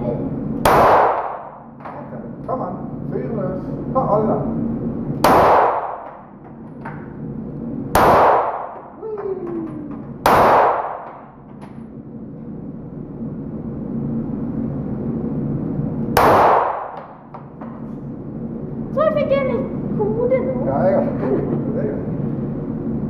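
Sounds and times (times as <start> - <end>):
pistol shots echoing indoors: 0.6 - 1.8, 5.2 - 6.7, 7.9 - 9.0, 10.2 - 11.6, 16.1 - 17.6.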